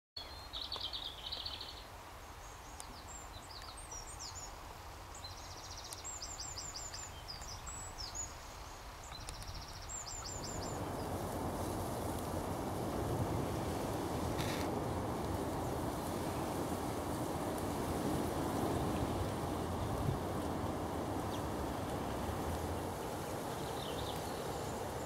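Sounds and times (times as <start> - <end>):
songbird singing trills: 0.2 - 11.3, 21.0 - 25.0
low wind rumble: 6.2 - 25.0.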